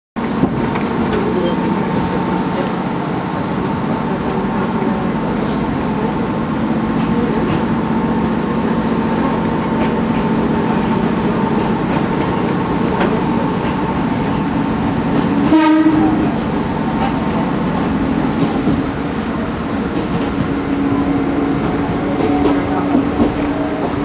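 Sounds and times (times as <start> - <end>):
electric train running hum and whine: 0.2 - 24.0.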